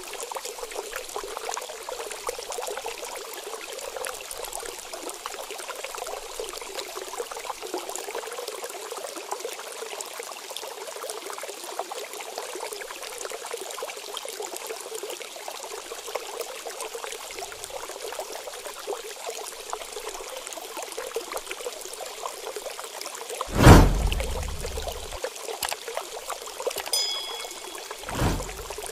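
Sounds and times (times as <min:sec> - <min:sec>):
water trickling: 0:24.0 - 0:28.9.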